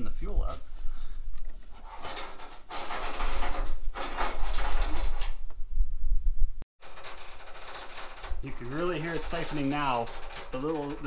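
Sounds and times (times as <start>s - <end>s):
siphon valve rattling: 6.8s - 11.0s.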